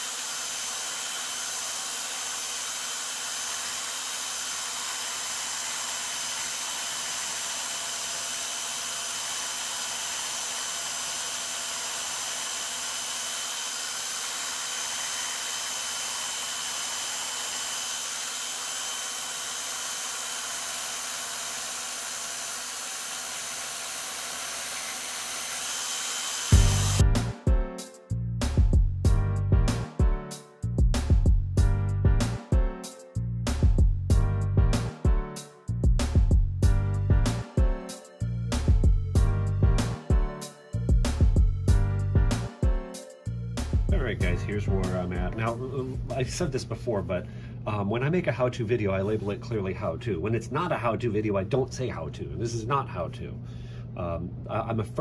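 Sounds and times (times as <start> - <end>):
electric sander whirring: 0.0 - 27.1.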